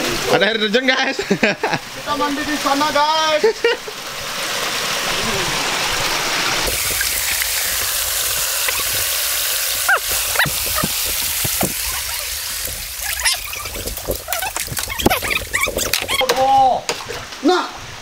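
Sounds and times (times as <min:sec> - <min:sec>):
water running over rocks: 0:00.0 - 0:18.0
short sliding squeaks: 0:09.9 - 0:16.3.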